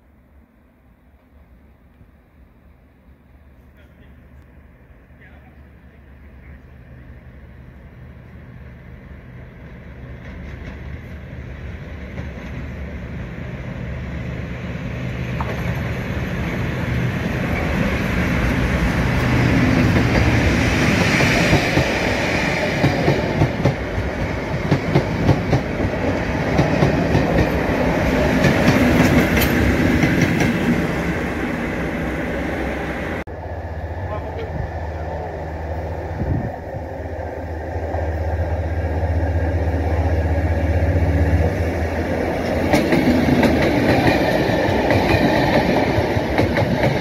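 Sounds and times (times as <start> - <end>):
diesel locomotive engine: 0.0 - 47.0
train wheels clattering: 19.2 - 30.8, 42.3 - 47.0.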